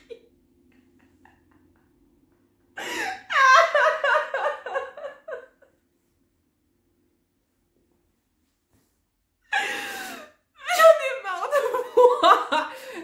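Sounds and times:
young woman laughing: 2.8 - 5.7, 9.6 - 13.0.

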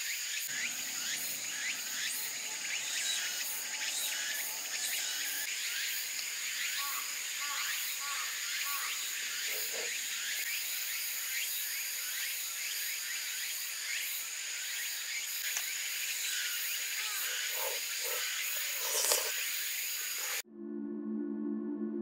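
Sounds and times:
small animals chirping: 16.9 - 19.4.

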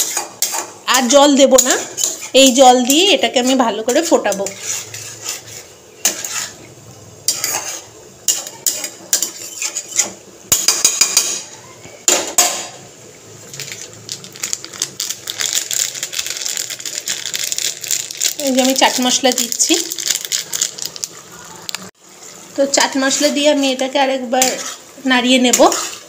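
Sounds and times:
metal spoon scraping a pan: 0.0 - 11.5, 22.9 - 26.0
gravy sizzling and bubbling: 0.0 - 26.0.

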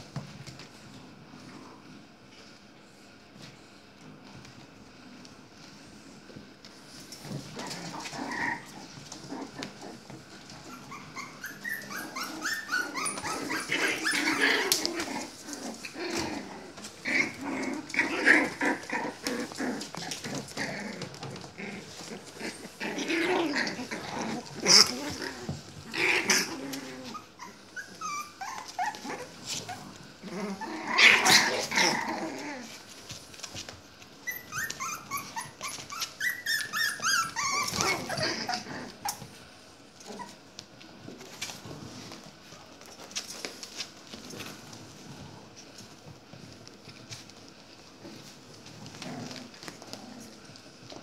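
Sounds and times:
puppies growling: 3.9 - 51.0
puppies whimpering squeals: 10.6 - 14.6, 26.4 - 29.3, 34.2 - 39.2.

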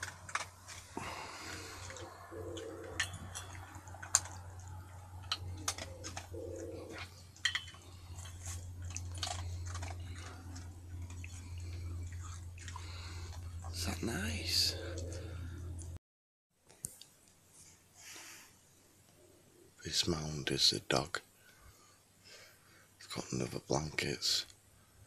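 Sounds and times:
teeth clicking on metal bowl: 0.0 - 13.8
dog chewing and crunching food: 0.0 - 16.0
steady low hum: 0.0 - 16.0.

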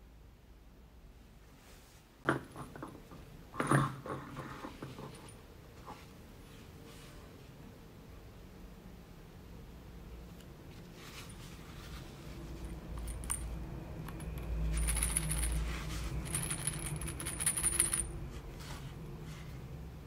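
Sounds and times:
small jingle bells jingling: 12.6 - 18.2.

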